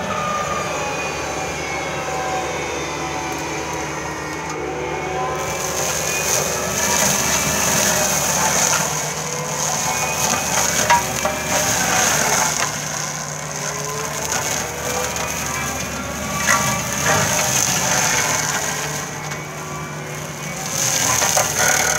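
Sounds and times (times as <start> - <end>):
diesel engine running: 0.0 - 21.9
mulcher rotor whine: 0.0 - 21.9
branches crackling and snapping: 5.4 - 21.9.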